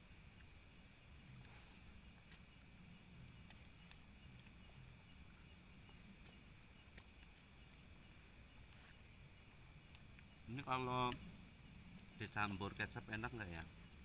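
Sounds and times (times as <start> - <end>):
night insects chirping: 0.0 - 14.0
short insect call: 0.0 - 14.0
faint clicks: 6.2 - 7.9, 9.8 - 10.4.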